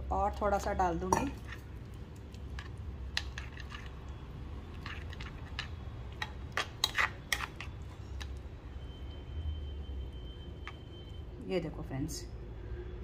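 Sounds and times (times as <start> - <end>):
spoon stirring batter in a bowl: 0.5 - 8.5
spoon clinking and scraping bowl: 1.0 - 8.4.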